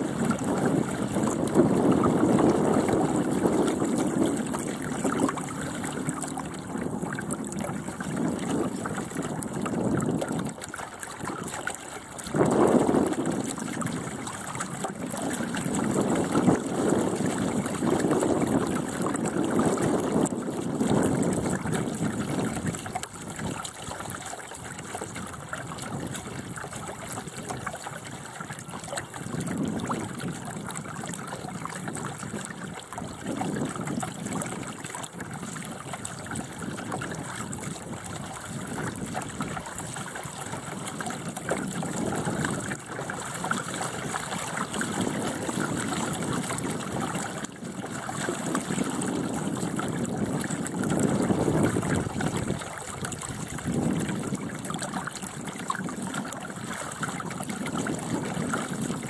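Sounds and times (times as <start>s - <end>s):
water rushing along a boat hull: 0.0s - 59.0s
wind on the microphone: 0.0s - 59.0s.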